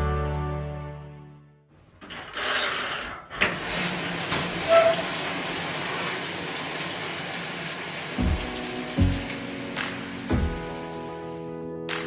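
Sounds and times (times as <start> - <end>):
washing machine filling with water: 3.4 - 11.4.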